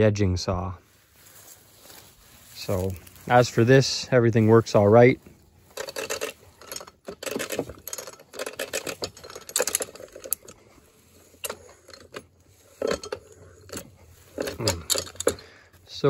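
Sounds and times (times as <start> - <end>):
metallic lever clicks and clanks: 5.8 - 10.6, 11.2 - 15.5.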